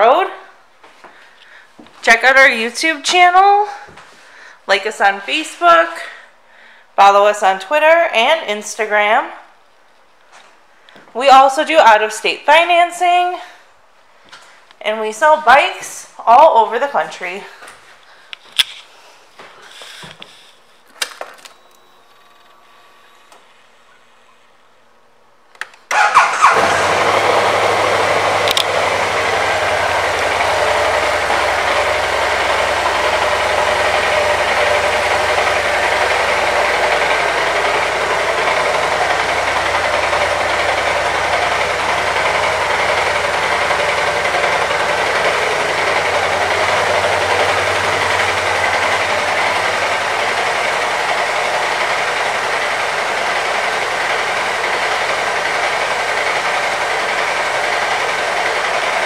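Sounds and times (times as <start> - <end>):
scooter engine starting and idling: 25.8 - 59.0.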